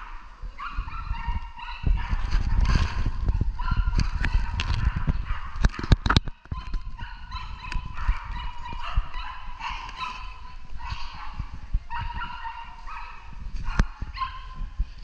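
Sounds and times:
small dog yapping: 6.5 - 14.4.

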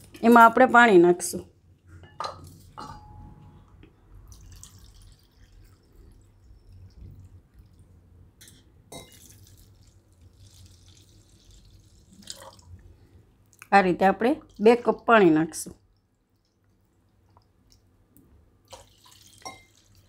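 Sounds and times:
water trickling: 4.2 - 8.2, 9.0 - 12.9, 18.6 - 20.0.

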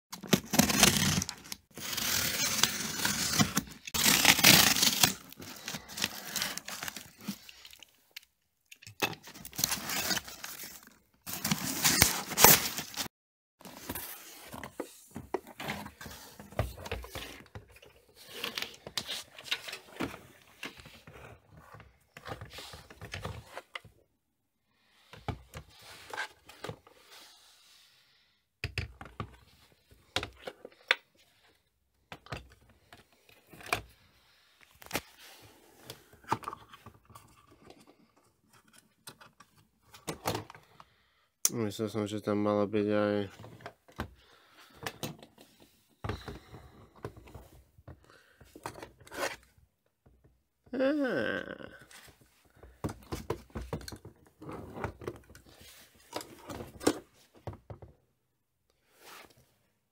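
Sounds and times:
cardboard box ripping: 0.2 - 7.3, 9.4 - 14.4
rustling and handling: 0.2 - 24.0.

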